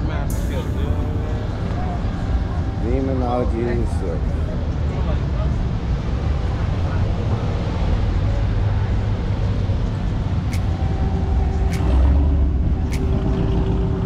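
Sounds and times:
motor vehicles rumbling: 0:00.0 - 0:14.0
sharp ticks: 0:10.5 - 0:12.2, 0:12.9 - 0:13.6.

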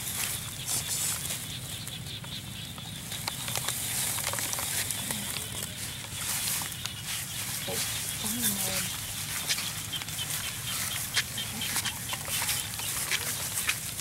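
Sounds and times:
steady high outdoor hiss: 0:00.0 - 0:14.0
plastic sack rustling and crinkling: 0:03.0 - 0:14.0.

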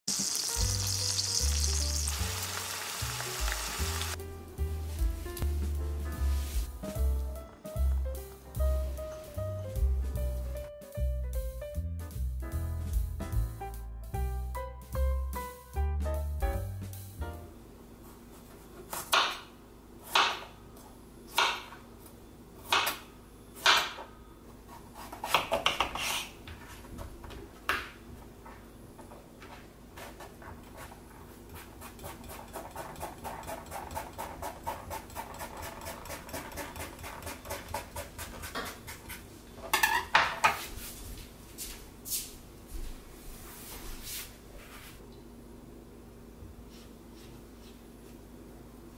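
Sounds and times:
knife chopping on cutting board: 0:18.9 - 0:20.5, 0:22.6 - 0:23.0, 0:24.9 - 0:26.2, 0:31.5 - 0:39.2.

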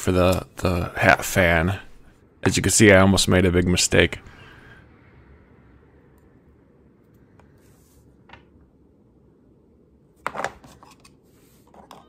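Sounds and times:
faint room noise: 0:00.0 - 0:12.0.

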